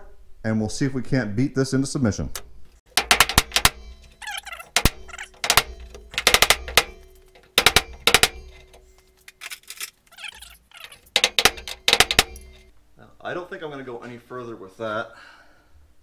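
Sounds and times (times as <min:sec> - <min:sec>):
hammer blows on wood against metal: 0:02.9 - 0:09.0, 0:11.1 - 0:12.7
metal panel ringing: 0:02.9 - 0:09.0, 0:11.0 - 0:12.7.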